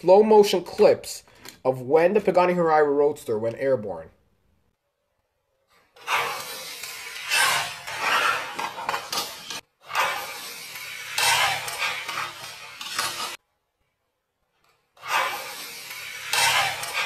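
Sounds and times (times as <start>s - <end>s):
toy cars clattering on plastic track: 6.0s - 13.4s.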